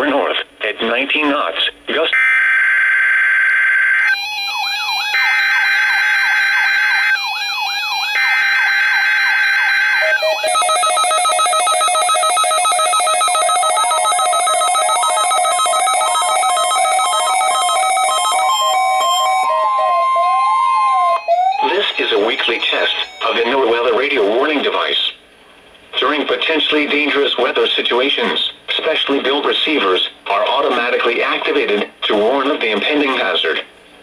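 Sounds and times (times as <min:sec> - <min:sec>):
multi-tone alarm siren sweeping: 0:02.2 - 0:23.7
warbling alert tone: 0:17.6 - 0:23.8.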